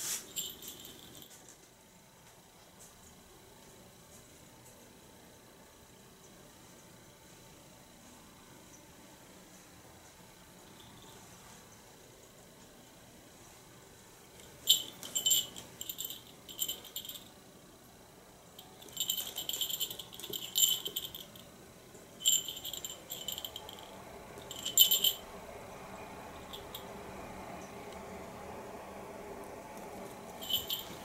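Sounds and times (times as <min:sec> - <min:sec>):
small bell jingling: 0:00.3 - 0:01.4, 0:14.7 - 0:17.3, 0:18.6 - 0:21.5, 0:22.2 - 0:25.4, 0:26.4 - 0:26.9, 0:30.4 - 0:31.0.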